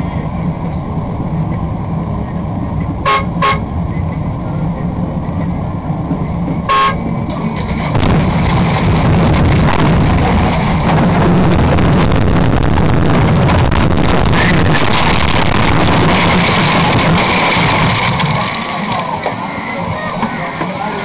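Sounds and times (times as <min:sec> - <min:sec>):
bus engine running: 0:00.0 - 0:21.0
road and wind noise: 0:00.0 - 0:21.0
bus horn toots: 0:03.0 - 0:03.7, 0:06.6 - 0:07.2.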